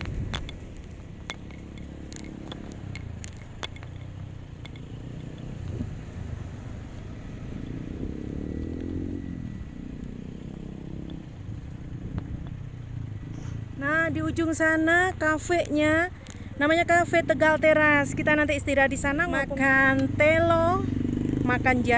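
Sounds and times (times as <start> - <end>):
sharp clicks: 0.0 - 5.9
vehicle engine running: 0.0 - 21.9.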